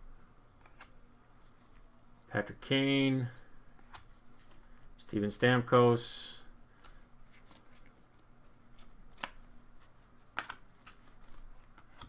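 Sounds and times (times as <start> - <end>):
cards sliding and ticking: 6.8 - 12.0.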